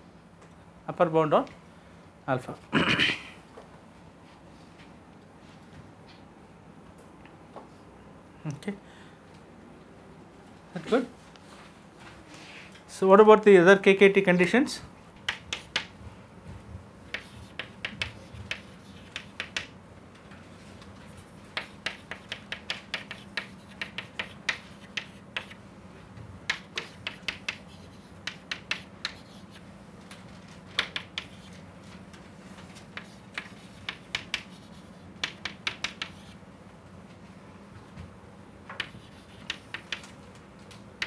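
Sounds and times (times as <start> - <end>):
chalk tapping and scratching on board: 15.2 - 16.0, 17.1 - 19.8, 21.0 - 25.6, 26.5 - 29.6, 30.8 - 31.6, 32.8 - 36.4, 38.7 - 40.1.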